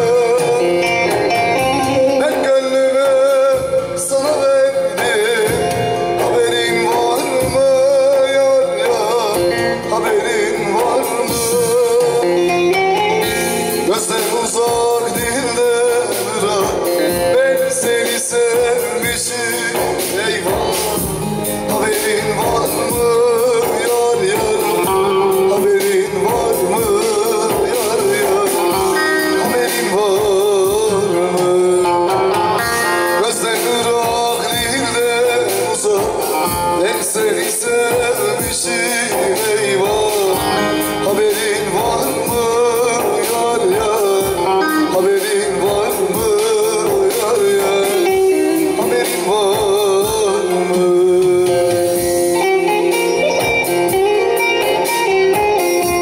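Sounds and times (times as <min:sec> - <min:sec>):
keyboard accompaniment: 0:00.0 - 0:56.0
man singing: 0:00.0 - 0:56.0
long-necked lute playing: 0:29.0 - 0:29.9, 0:44.6 - 0:45.2.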